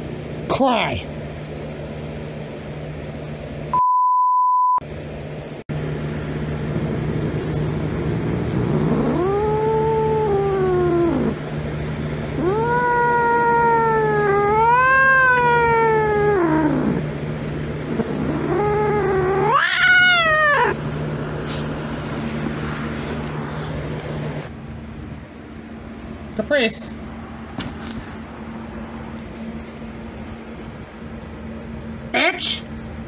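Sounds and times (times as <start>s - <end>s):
censor bleep: 3.7s - 4.8s
cat yowling: 8.5s - 11.4s, 12.3s - 17.0s, 18.0s - 20.8s.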